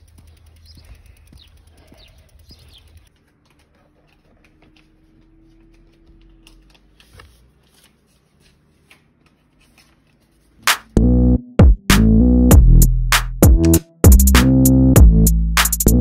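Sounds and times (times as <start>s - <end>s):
faint clicks and taps: 0.0s - 7.9s.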